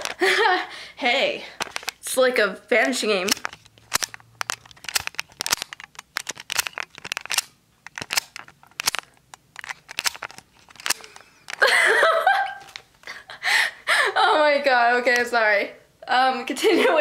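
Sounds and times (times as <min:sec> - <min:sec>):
camera handling noise: 0:01.6 - 0:02.0, 0:03.3 - 0:11.7.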